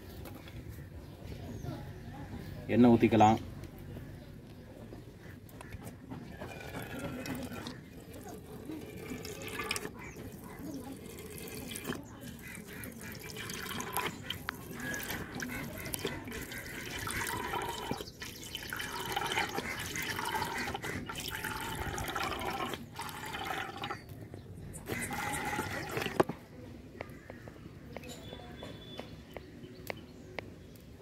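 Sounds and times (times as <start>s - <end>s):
oil pouring into a pan: 6.5s - 24.0s.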